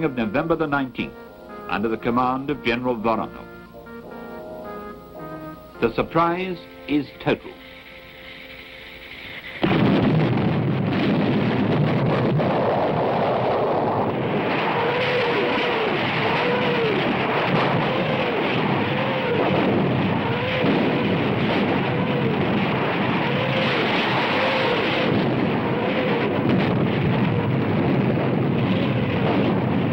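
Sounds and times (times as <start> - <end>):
faint rising and falling whine: 0.0 - 10.0
artillery barrage rumble: 0.0 - 29.9.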